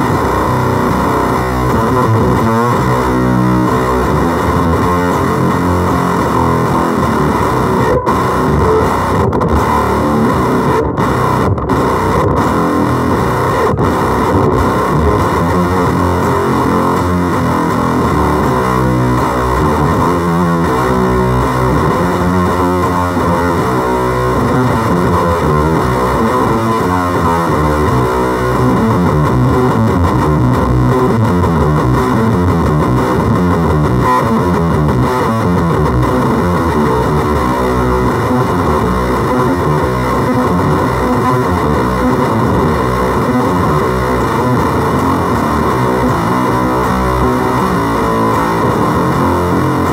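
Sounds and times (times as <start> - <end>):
distorted electric guitar: 0.0 - 49.9.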